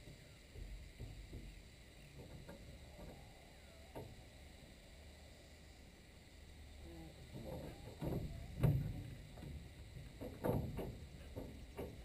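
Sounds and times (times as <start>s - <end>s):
irregular knocks and clicks: 0.0s - 3.2s, 7.3s - 12.0s.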